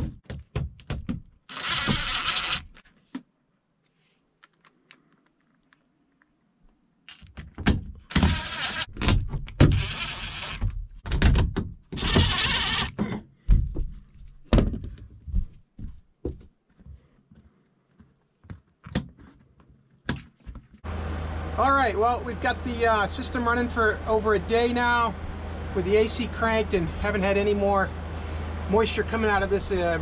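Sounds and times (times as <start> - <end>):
cordless drill driving screws: 1.5 - 2.8, 8.1 - 8.9, 9.6 - 10.7, 12.0 - 13.0.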